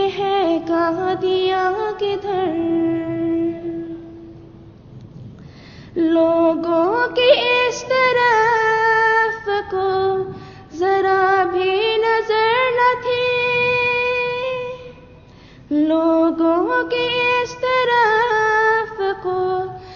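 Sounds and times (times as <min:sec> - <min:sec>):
high voice singing unaccompanied: 0:06.0 - 0:15.1.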